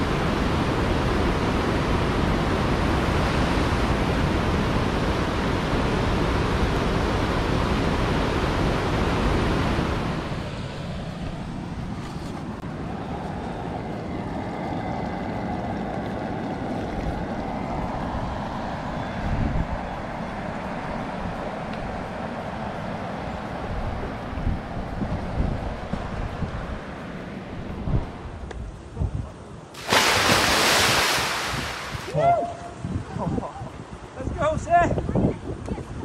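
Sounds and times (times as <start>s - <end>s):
river rapids rushing: 29.8s - 32.2s.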